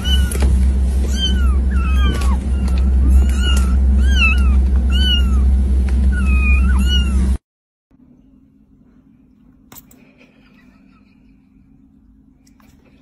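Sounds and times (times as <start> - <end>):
kittens mewing: 0.0 - 5.5, 6.1 - 7.4
car cabin low rumble: 0.0 - 7.4.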